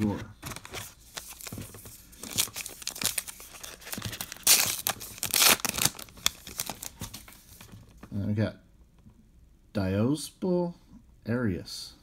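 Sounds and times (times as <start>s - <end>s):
wrapper torn and crinkled: 2.2s - 7.0s.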